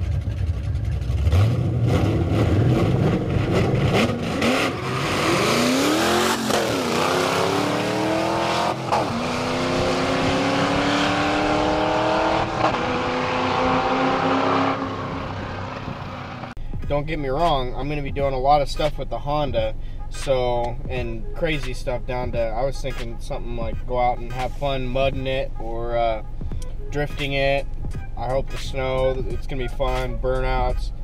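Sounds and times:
race car engines revving: 0.0s - 16.6s.

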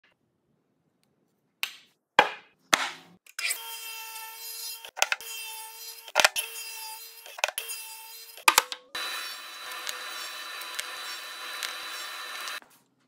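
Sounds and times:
radial arm saw cutting wood: 4.2s - 12.6s.

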